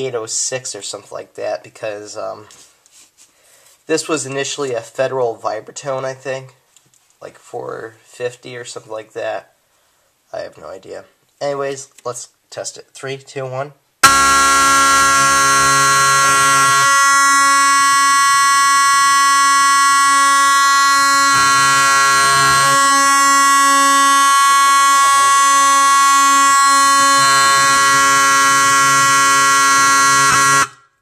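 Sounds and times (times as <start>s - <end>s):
fire alarm horn sounding: 14.0s - 31.0s.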